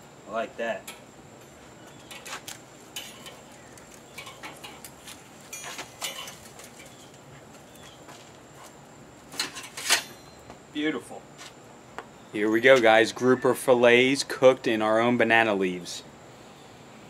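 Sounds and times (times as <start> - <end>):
utensils scraping metal grill grate: 2.1 - 7.1, 9.3 - 10.2.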